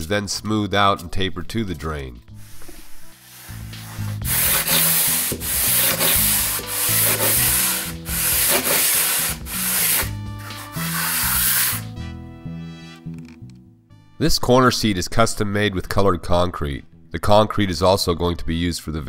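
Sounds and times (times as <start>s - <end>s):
trowel scraping mortar: 3.5s - 11.9s.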